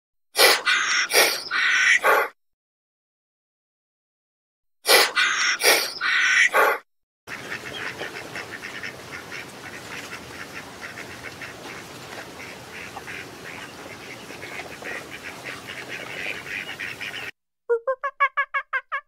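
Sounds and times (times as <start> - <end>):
whistling ducks calling: 0.6 - 2.3, 5.2 - 6.6, 7.3 - 17.3.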